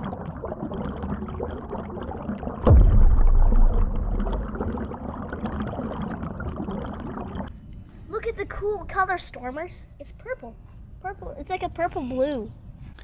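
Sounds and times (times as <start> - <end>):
muffled underwater water sloshing: 0.0 - 13.0
loud dull thump: 2.6 - 4.7.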